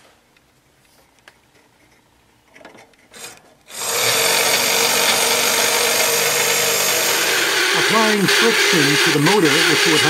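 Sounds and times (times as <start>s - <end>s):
small electric motor buzzing: 3.2s - 10.0s.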